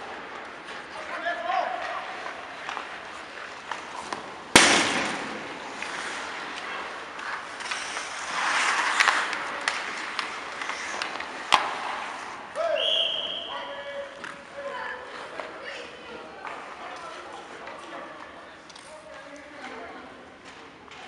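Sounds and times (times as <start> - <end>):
skates scraping on ice: 0.0 - 19.3
puck strike crack: 4.1 - 6.0, 8.9 - 12.1.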